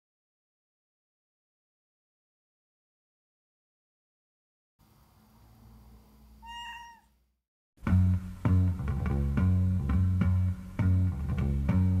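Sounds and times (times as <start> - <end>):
cat meowing: 6.4 - 7.2
music with bass and plucked guitar: 7.8 - 12.0.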